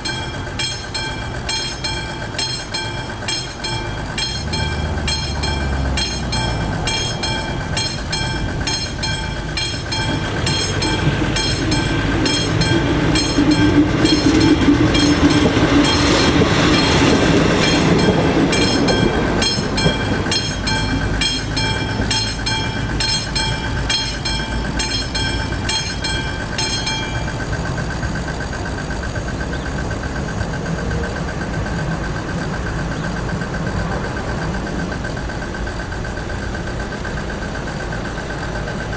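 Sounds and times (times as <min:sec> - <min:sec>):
level crossing bell ringing: 0:00.0 - 0:28.8
diesel railcar passing: 0:00.0 - 0:38.9.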